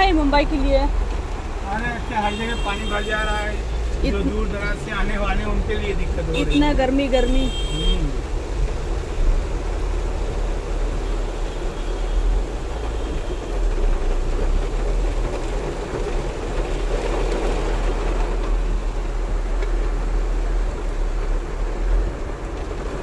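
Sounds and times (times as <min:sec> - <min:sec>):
heavy rain on car roof: 0:00.0 - 0:23.0.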